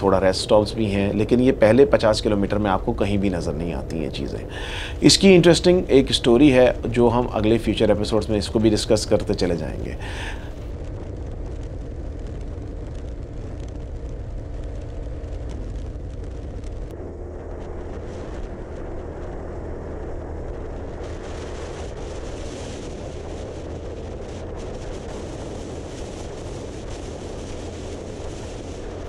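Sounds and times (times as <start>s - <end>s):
wind rush: 0.0s - 29.0s.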